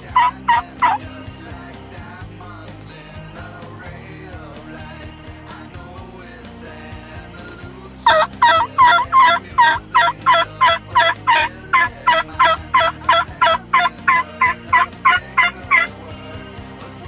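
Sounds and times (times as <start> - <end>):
wild turkey yelping: 0.0 - 1.0, 8.1 - 15.9.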